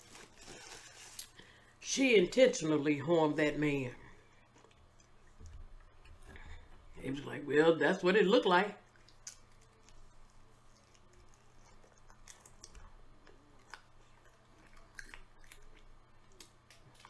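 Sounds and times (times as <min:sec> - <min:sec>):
chewing soft food: 0:04.0 - 0:06.8, 0:08.8 - 0:17.0.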